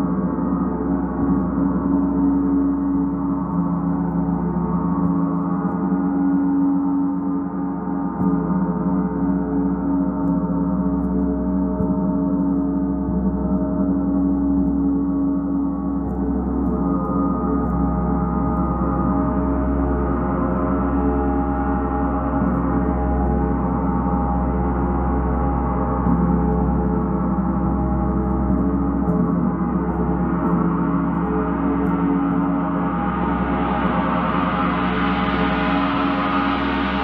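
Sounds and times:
gong played with soft mallet: 0:08.0 - 0:37.0
low hum: 0:12.4 - 0:37.0.

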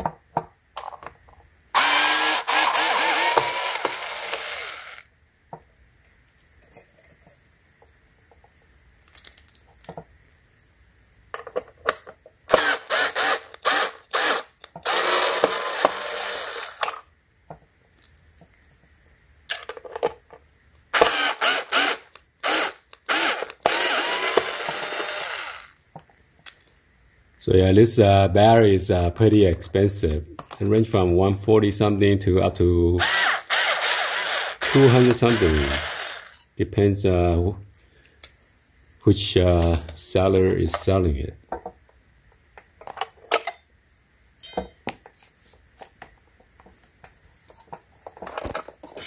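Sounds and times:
cordless drill driving screws: 0:01.8 - 0:05.0, 0:12.5 - 0:17.0, 0:21.0 - 0:25.8, 0:33.0 - 0:36.4
clicks of bit and handling: 0:09.0 - 0:10.7.

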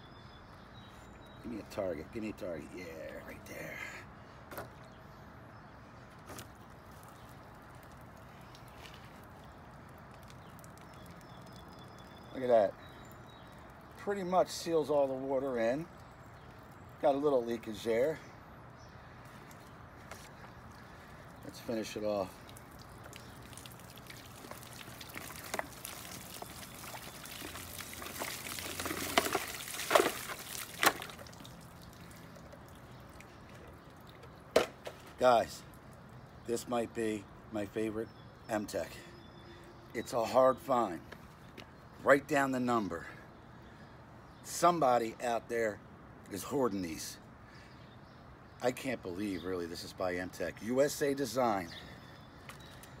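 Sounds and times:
water pouring and splashing: 0:06.2 - 0:16.8, 0:19.5 - 0:36.2.

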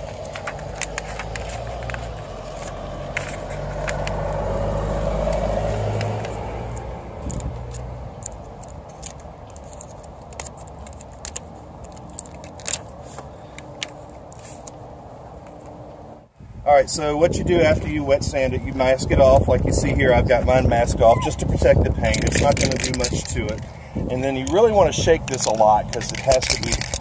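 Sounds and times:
tape pulled from dispenser: 0:00.0 - 0:04.6, 0:22.0 - 0:23.7, 0:25.2 - 0:27.0
paper crackling: 0:00.0 - 0:15.7, 0:22.0 - 0:23.8, 0:24.4 - 0:27.0
passing vehicle engine hum: 0:00.0 - 0:16.3.

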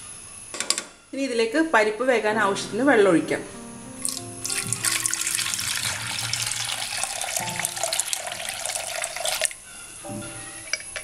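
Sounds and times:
water pouring into a pot: 0:04.0 - 0:09.6.

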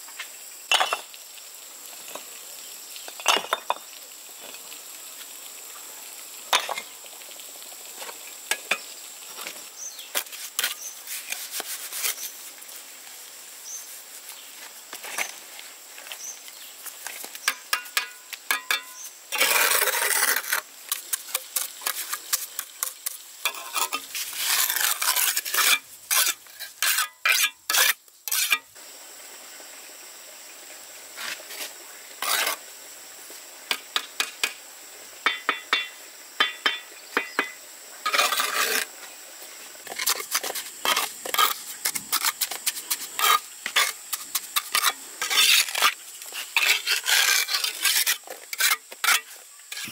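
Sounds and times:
hand tool scraping and clinking: 0:17.4 - 0:28.7, 0:38.1 - 0:38.9, 0:39.9 - 0:49.9.

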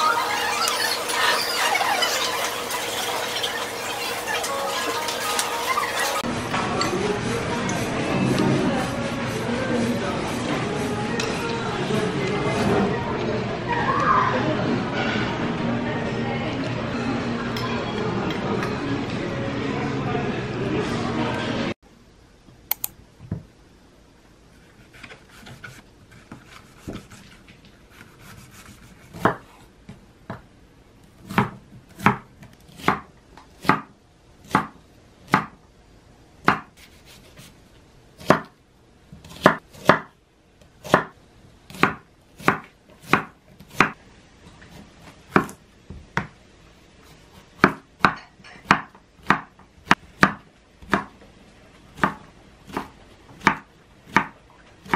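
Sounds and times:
knife chopping on wooden board: 0:31.3 - 0:35.6, 0:36.4 - 0:36.9, 0:38.2 - 0:38.5, 0:39.2 - 0:40.1, 0:40.8 - 0:41.1, 0:41.7 - 0:44.0, 0:47.6 - 0:51.1, 0:52.0 - 0:54.9.

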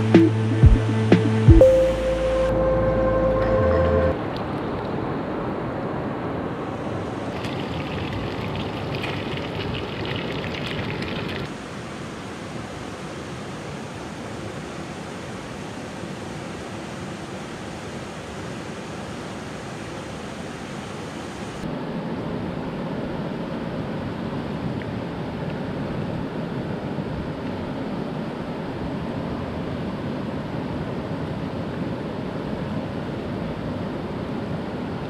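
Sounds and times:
stream water rushing: 0:04.2 - 0:21.7.

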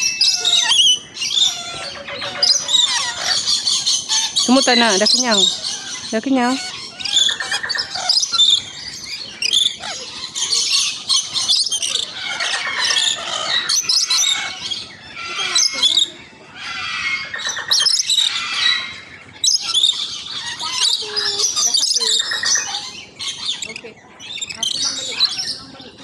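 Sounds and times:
parrots screeching and chattering: 0:00.0 - 0:26.0.

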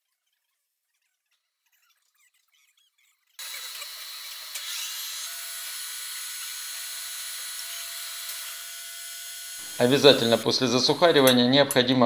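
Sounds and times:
workshop hiss: 0:09.6 - 0:11.3.

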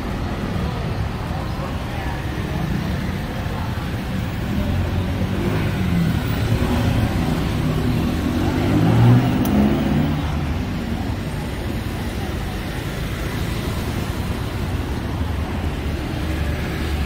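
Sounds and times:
road noise: 0:00.0 - 0:17.0
vehicle engine passing: 0:04.4 - 0:11.6.

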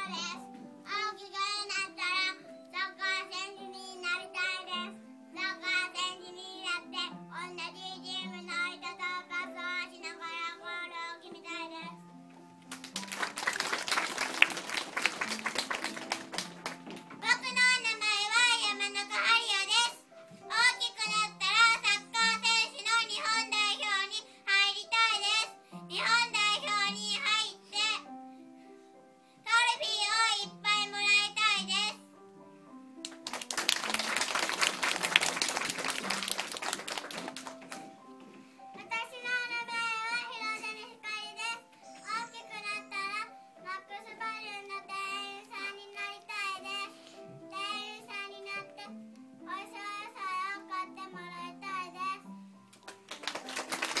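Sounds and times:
boy singing: 0:00.0 - 0:11.9, 0:17.2 - 0:28.1, 0:29.5 - 0:32.0, 0:38.8 - 0:48.9, 0:49.5 - 0:52.3.

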